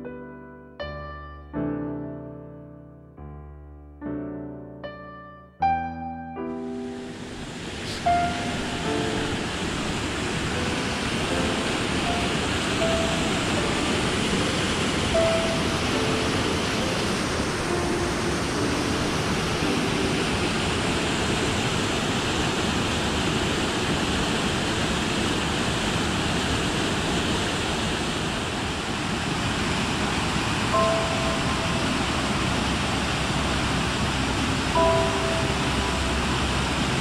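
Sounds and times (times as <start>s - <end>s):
waterfall pouring into pool: 7.5s - 37.0s.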